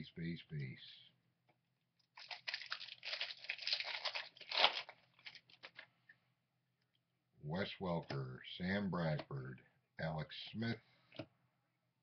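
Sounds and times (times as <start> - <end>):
foil wrapper tearing and crinkling: 2.2 - 5.8.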